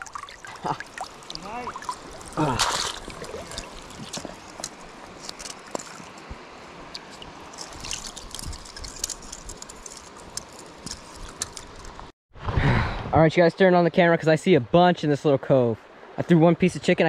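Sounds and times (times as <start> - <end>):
small splashes and drips: 0.0 - 12.0
creek water trickling: 0.0 - 12.1.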